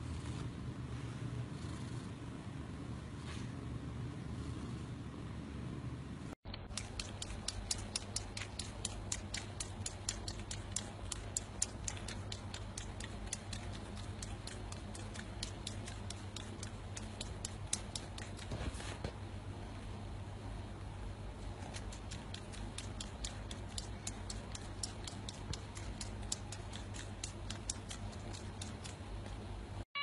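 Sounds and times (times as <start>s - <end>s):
kitten suckling clicks: 6.5s - 18.6s, 21.6s - 29.5s.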